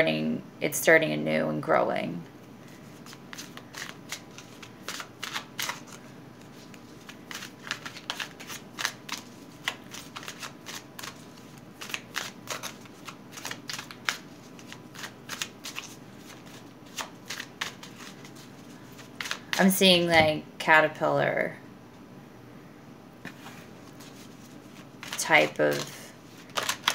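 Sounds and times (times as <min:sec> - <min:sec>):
cards being shuffled: 0:02.6 - 0:19.7, 0:23.3 - 0:26.9.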